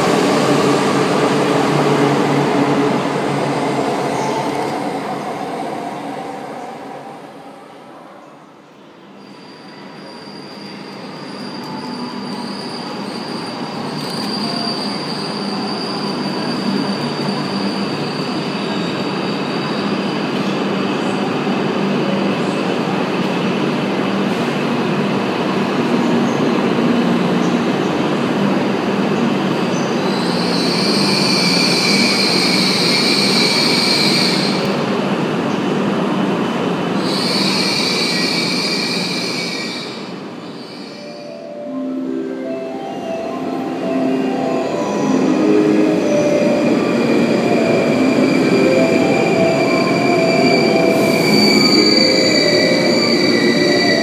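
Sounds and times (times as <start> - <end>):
high brake squeal: 9.0 - 20.4, 30.1 - 34.7, 37.0 - 41.6, 46.3 - 54.0.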